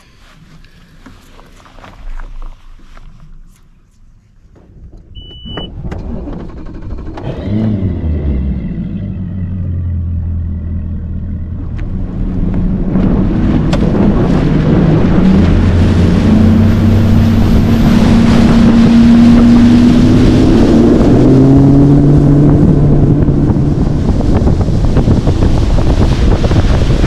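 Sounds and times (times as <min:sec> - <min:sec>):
short high beep: 0:05.1 - 0:05.7
outboard motor running: 0:05.1 - 0:27.0
wind and water rush: 0:11.4 - 0:27.0.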